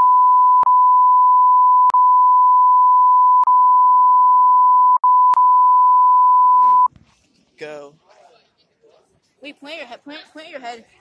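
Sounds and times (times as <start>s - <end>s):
sine wave test tone: 0.0s - 6.9s.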